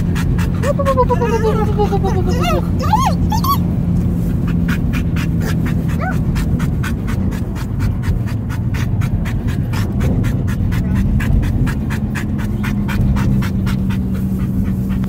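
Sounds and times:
dog whining: 0:00.0 - 0:03.8, 0:04.4 - 0:07.8
car road and engine hum: 0:00.0 - 0:15.0
dog panting: 0:00.0 - 0:15.0.

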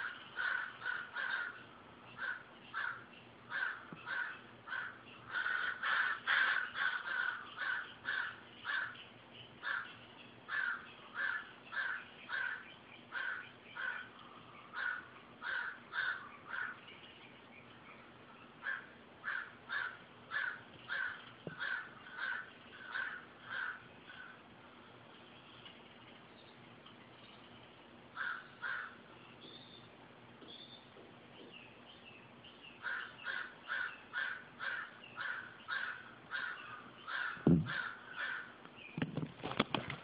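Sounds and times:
crows cawing: 0:00.0 - 0:09.0, 0:09.6 - 0:16.8, 0:18.6 - 0:24.4, 0:28.2 - 0:29.1, 0:32.8 - 0:38.6.

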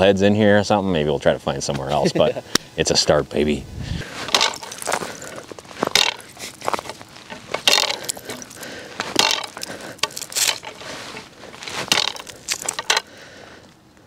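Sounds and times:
footsteps crunching on crusty snow: 0:04.0 - 0:12.9.

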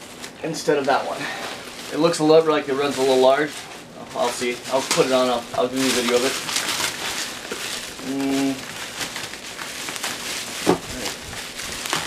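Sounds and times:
bubble wrap crinkling: 0:00.0 - 0:12.0
bubble wrap snap: 0:04.2 - 0:12.0.

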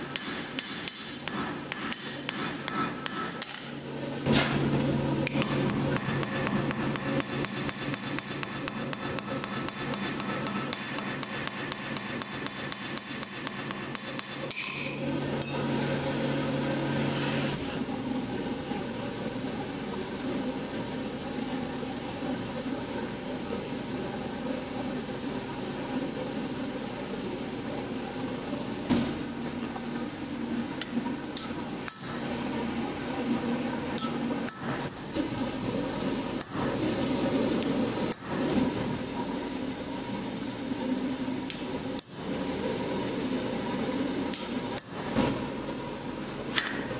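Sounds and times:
hammer striking metal on anvil: 0:00.0 - 0:03.7, 0:05.2 - 0:15.7, 0:34.0 - 0:35.0
scraping and working sounds: 0:00.0 - 0:19.1.

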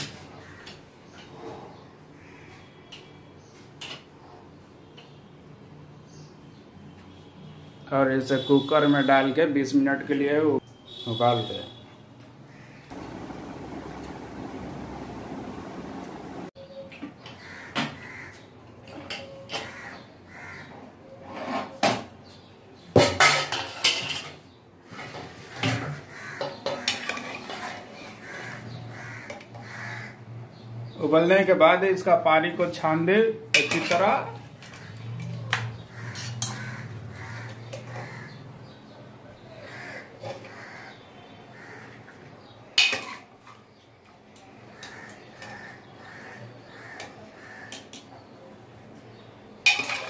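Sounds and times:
metal kitchenware clanking: 0:23.0 - 0:24.4, 0:33.5 - 0:34.8, 0:42.8 - 0:43.4, 0:49.7 - 0:50.0
metal ladle clanking: 0:33.5 - 0:34.1, 0:49.7 - 0:50.0
ladle clinking against pots: 0:33.5 - 0:34.4, 0:49.7 - 0:50.0.

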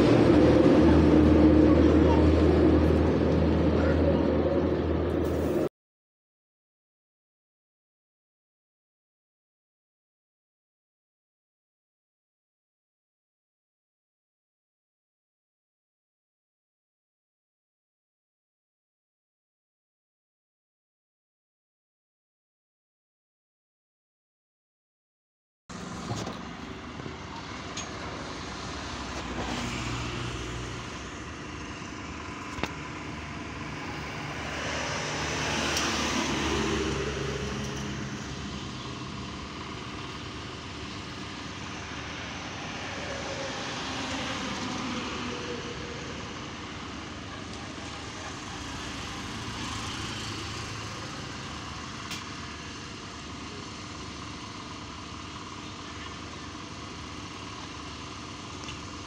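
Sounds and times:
vehicles passing: 0:00.0 - 0:05.7, 0:25.7 - 0:59.0.

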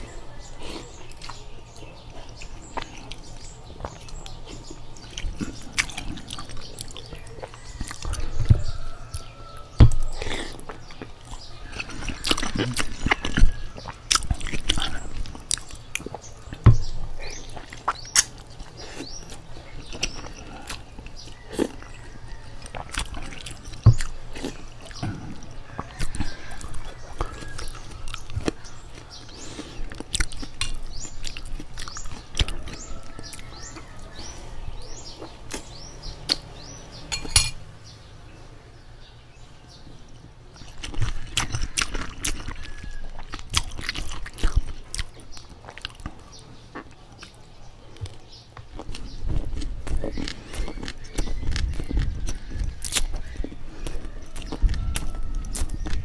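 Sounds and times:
slurping and chewing noodles: 0:00.0 - 0:36.5, 0:40.6 - 0:56.0
spoon clinking against glass bowl: 0:37.1 - 0:37.6.

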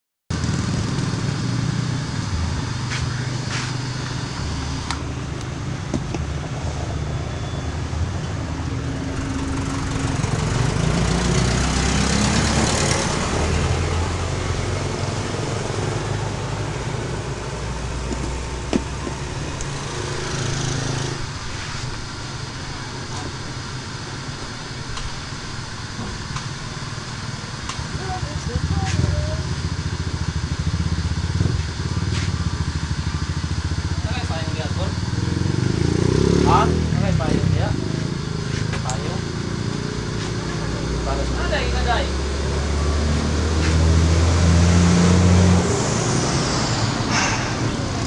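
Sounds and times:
hair dryers blowing: 0:02.9 - 0:06.1, 0:43.6 - 0:48.0.

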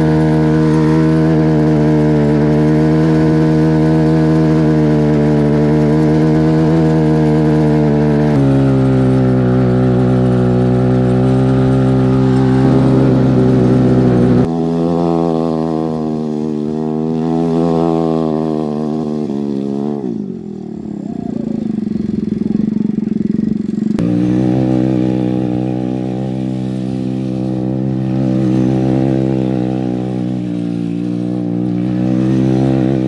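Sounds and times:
small engine revving and idling: 0:00.0 - 0:33.0.

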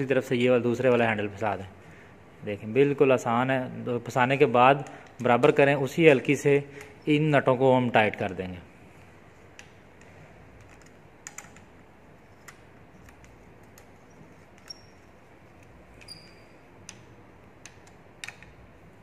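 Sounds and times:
small clicks and taps: 0:16.8 - 0:18.6.

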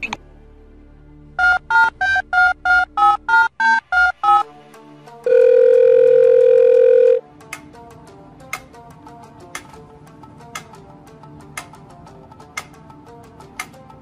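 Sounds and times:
telephone keypad beeps: 0:01.4 - 0:04.4, 0:05.3 - 0:07.2
steady telephone tone: 0:05.3 - 0:07.2.

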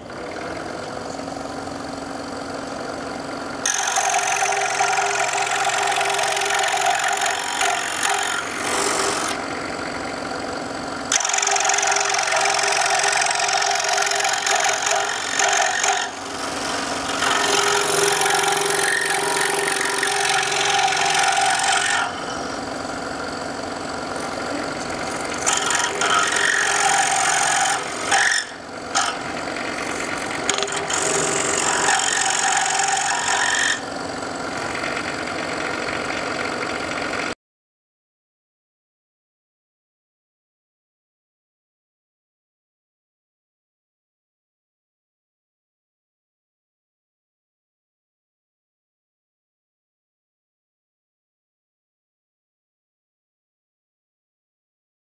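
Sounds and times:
saw motor hum: 0:00.0 - 0:37.4
scroll saw cutting wood: 0:00.0 - 0:37.4.

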